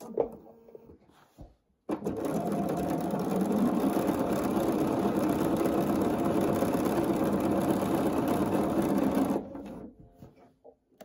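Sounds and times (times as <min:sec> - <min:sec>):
sewing machine stitching: 0:01.9 - 0:09.9.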